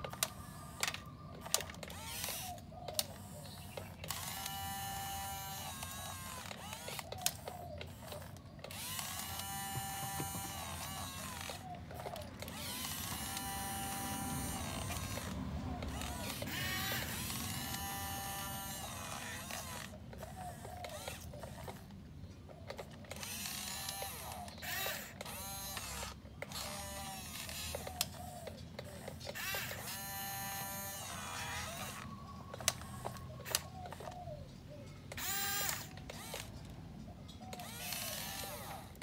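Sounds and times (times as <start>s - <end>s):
sharp clicks: 0.0s - 34.3s
toy electric motors whining: 0.0s - 39.0s.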